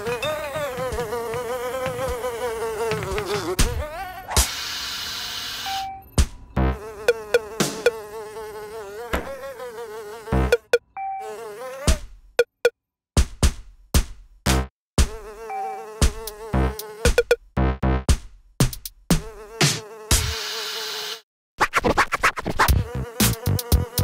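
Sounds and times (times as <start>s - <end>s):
short beeps: 5.7s - 6.2s, 10.5s - 11.3s.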